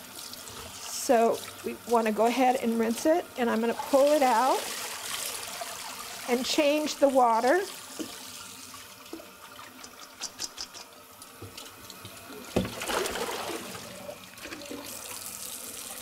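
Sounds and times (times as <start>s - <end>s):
water gushing into sink: 0.0s - 10.2s, 10.9s - 16.0s
faucet running into plastic bowl: 0.2s - 10.2s.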